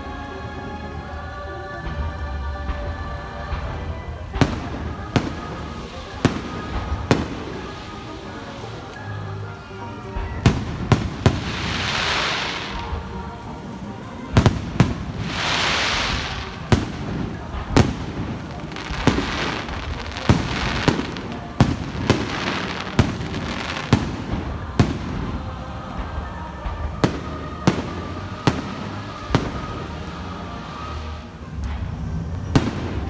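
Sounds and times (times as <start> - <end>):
crackling hiss: 0.0 - 33.0
firework bangs: 2.6 - 33.0.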